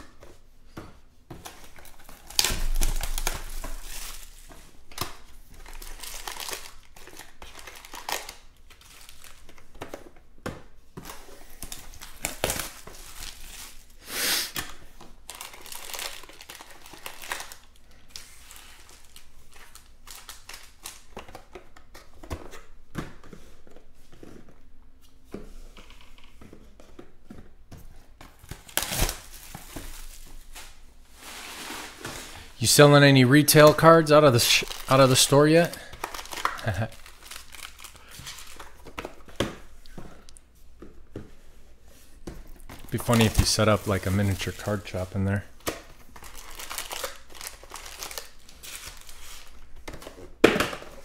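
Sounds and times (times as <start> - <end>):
foil packs crinkling and rustling: 1.4 - 10.2, 11.0 - 22.7, 28.2 - 40.4, 42.4 - 51.0
plastic wrapping tearing: 1.8 - 9.4, 11.6 - 21.2, 28.5 - 31.9, 32.6 - 38.8, 42.8 - 49.6.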